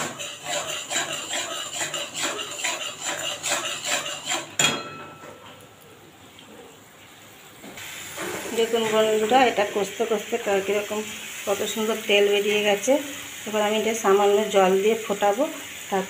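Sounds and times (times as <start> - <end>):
metal spatula scraping wok: 0.0 - 4.9.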